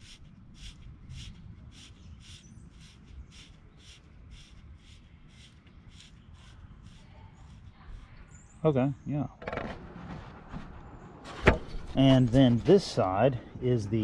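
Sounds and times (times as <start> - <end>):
rhythmic dry scraping of threads: 0.0 - 8.3.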